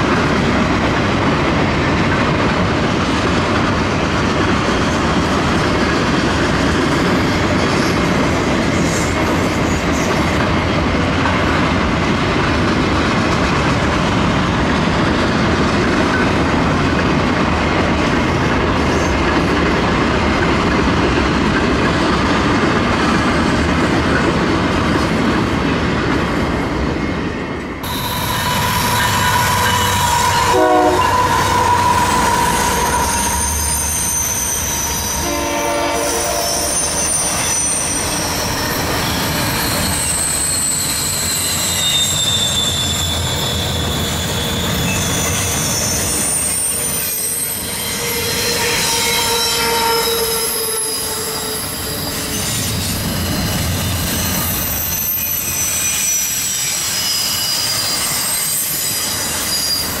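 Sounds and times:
rumble of freight cars: 0:00.0 - 1:00.0
train wheels squealing on rails: 0:03.2 - 0:17.3, 0:18.2 - 0:20.8, 0:27.1 - 1:00.0
short horn-like note: 0:27.9 - 0:33.9.

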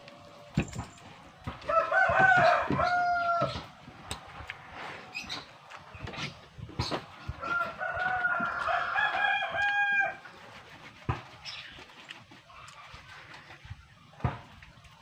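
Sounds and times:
rooster crowing: 0:01.6 - 0:03.7, 0:07.3 - 0:10.2.

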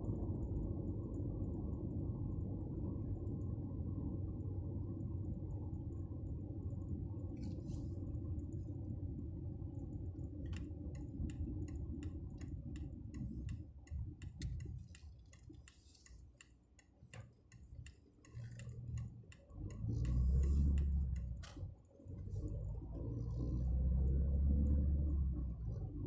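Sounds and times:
engine and tyre rumble: 0:00.0 - 0:26.0
turn signal ticking: 0:00.0 - 0:26.0.

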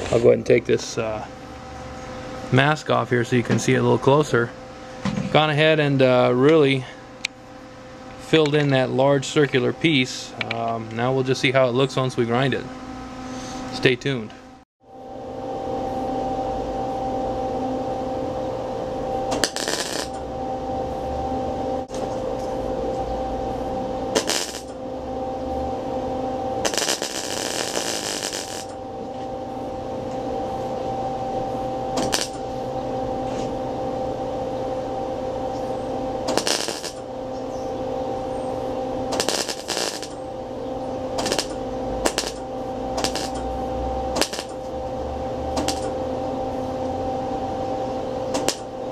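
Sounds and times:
steady machine hum: 0:00.0 - 0:48.9
welding arc crackling: 0:19.3 - 0:20.3, 0:24.1 - 0:24.8, 0:26.6 - 0:28.8, 0:31.9 - 0:32.6, 0:36.2 - 0:37.1, 0:39.0 - 0:40.3, 0:41.1 - 0:44.8, 0:45.4 - 0:46.0, 0:48.3 - 0:48.7.

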